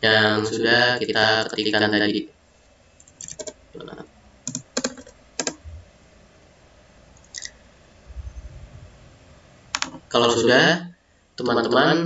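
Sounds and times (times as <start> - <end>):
keyboard and mouse clicks: 3.0 - 3.6, 4.5 - 5.6, 9.7 - 10.0
soft low rumble: 5.6 - 6.0, 7.8 - 9.8.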